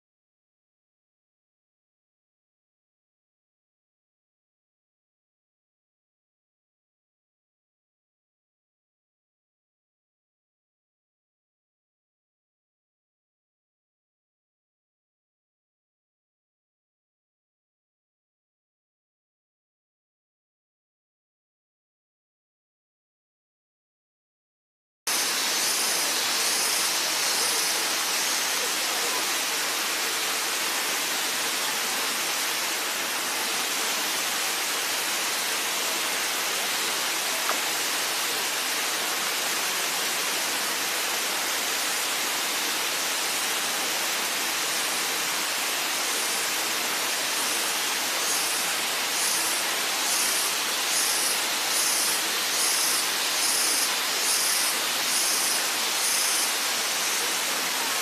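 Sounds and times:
waterfall rushing: 25.1s - 58.0s.

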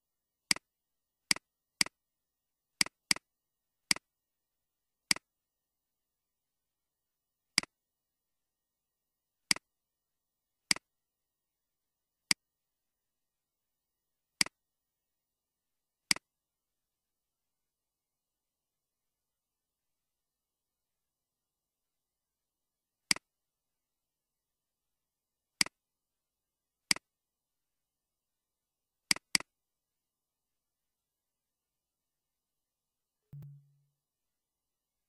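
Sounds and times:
computer mouse clicks: 29.1s - 29.5s.

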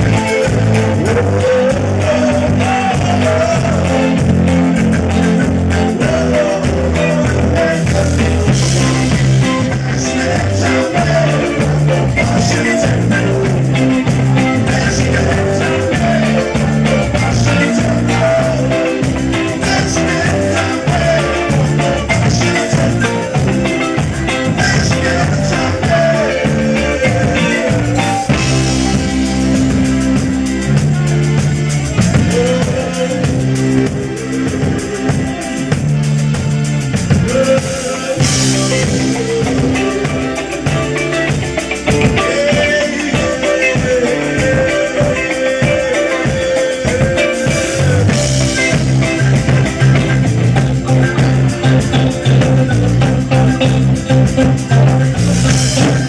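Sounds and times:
drum kit: 0.0s - 56.0s
electric guitar: 0.0s - 56.0s
live rock band playing: 0.0s - 56.0s.

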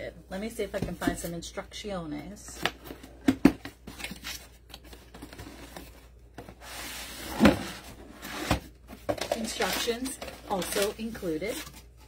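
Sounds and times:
hands rummaging through packaging: 2.8s - 12.0s.

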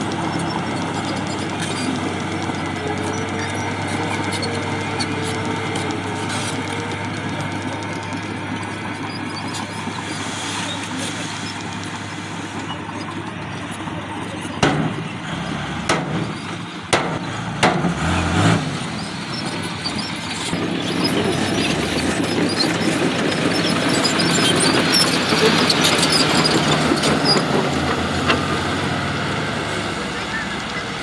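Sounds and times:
dump truck diesel engines: 0.0s - 31.0s
truck driving across dirt: 0.0s - 31.0s
sharp knocks: 16.9s - 18.0s.

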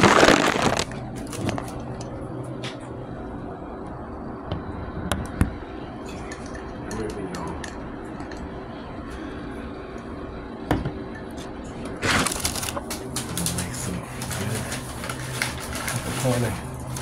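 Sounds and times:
restaurant background hum: 0.0s - 17.0s.

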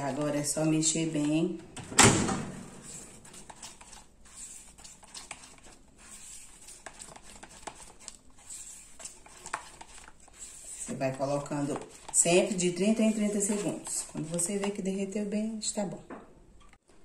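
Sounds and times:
spatula scraping plastic pot: 2.7s - 15.0s.

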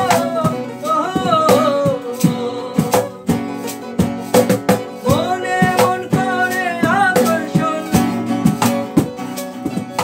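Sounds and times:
man singing: 0.0s - 3.4s, 5.0s - 8.7s
acoustic guitars strumming: 0.0s - 10.0s.

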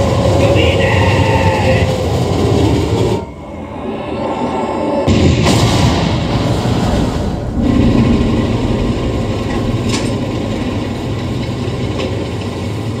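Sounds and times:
propeller engines droning: 0.0s - 13.0s
mechanical rattling: 6.7s - 13.0s.

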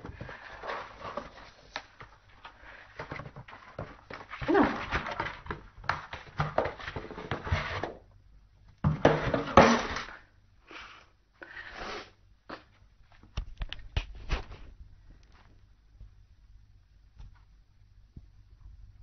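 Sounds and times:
cardboard box rustling and scraping: 0.0s - 8.1s.

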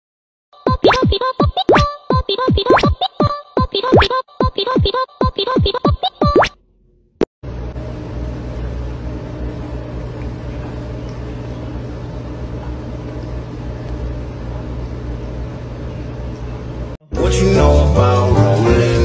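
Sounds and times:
low mechanical hum: 6.6s - 17.5s.

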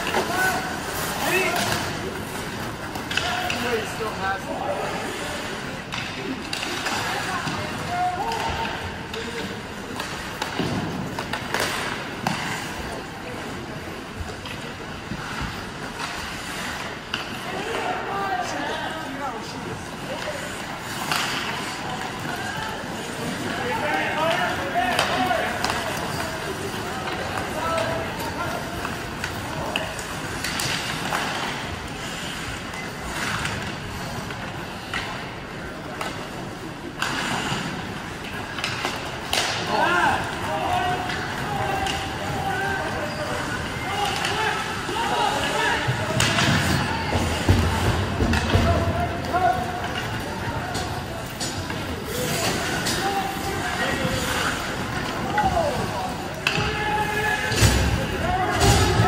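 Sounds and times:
arena background noise: 0.0s - 59.0s
ice rink background noise: 0.0s - 59.0s
sharp knocks of sticks and puck: 28.8s - 31.6s, 38.5s - 39.9s.

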